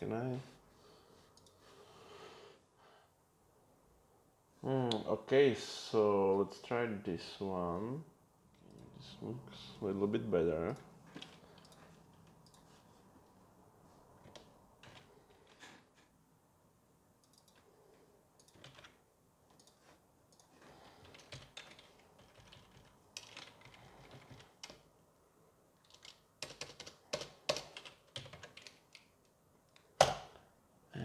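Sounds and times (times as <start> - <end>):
typing on computer keyboard: 18.4 - 19.0, 20.4 - 24.9, 25.8 - 29.1.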